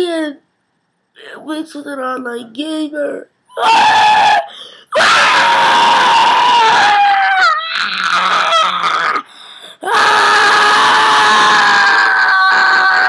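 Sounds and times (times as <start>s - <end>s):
person screaming: 3.5s - 13.0s.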